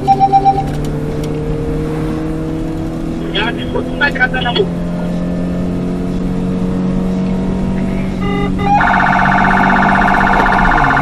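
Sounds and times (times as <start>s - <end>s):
electronic siren warbling: 0.0s - 0.8s, 8.2s - 11.0s
short beep: 0.0s - 0.8s
car engine and road noise: 0.0s - 11.0s.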